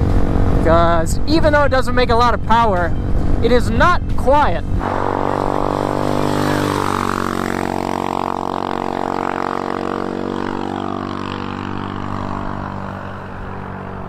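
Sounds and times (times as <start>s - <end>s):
motorcycle engine wailing: 4.8s - 14.0s.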